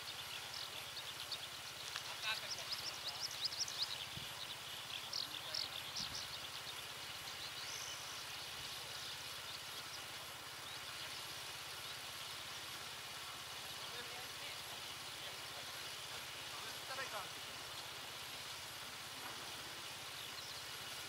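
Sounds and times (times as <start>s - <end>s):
high-pitched chirping calls: 0.0s - 8.2s
steady low hiss: 0.0s - 21.0s.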